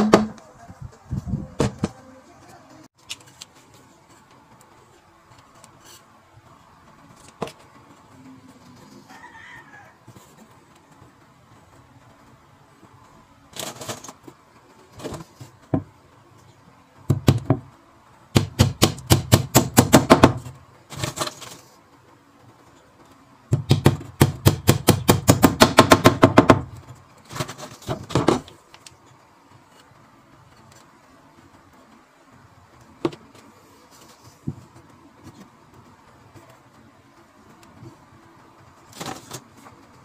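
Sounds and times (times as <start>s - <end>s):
hammer striking nails into wood: 18.4s - 20.5s, 23.6s - 26.7s.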